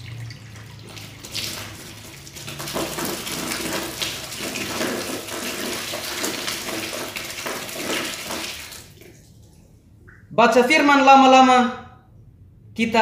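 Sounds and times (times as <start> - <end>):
water pouring into a glass: 0.0 - 9.4
water splashing onto floor: 0.0 - 10.2.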